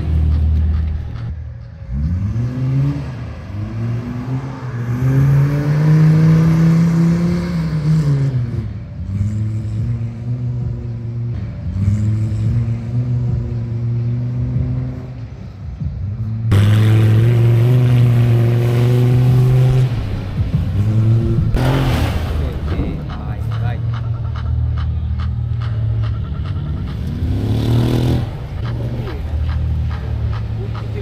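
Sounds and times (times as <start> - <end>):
car engine revving hard: 1.9 - 15.2, 16.4 - 23.6, 26.8 - 31.0.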